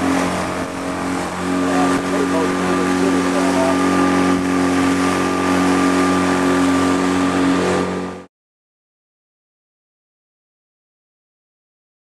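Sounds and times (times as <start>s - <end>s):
outboard motor running: 0.0s - 8.3s
water rushing: 0.0s - 8.3s.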